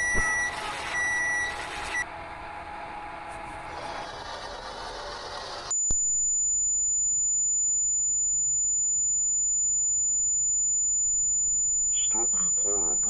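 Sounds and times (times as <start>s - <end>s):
high-pitched electronic tone: 11.9s - 13.0s.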